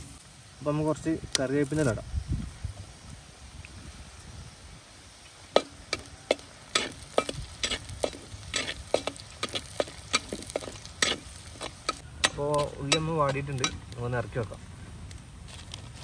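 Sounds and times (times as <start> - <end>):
faint sizzle: 0.0 - 14.6
spoon knocking and scraping pan: 5.6 - 12.0.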